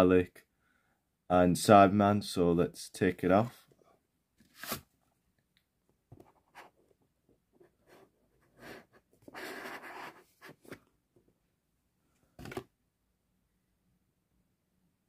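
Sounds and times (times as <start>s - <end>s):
cardboard scraping slide: 4.4s - 4.9s, 8.5s - 10.8s.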